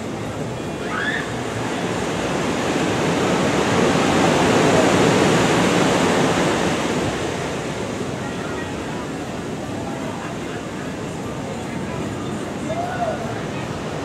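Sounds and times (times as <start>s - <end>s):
ocean surf breaking on beach: 0.0s - 14.0s.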